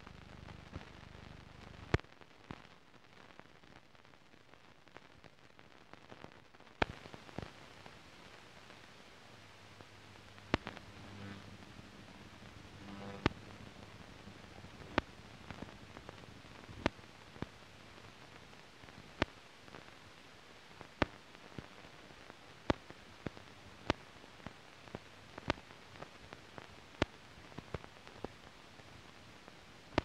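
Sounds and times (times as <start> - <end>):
film soundtrack hiss: 0.0 - 30.0
sharp clicks and pops: 6.0 - 8.0, 9.8 - 19.9.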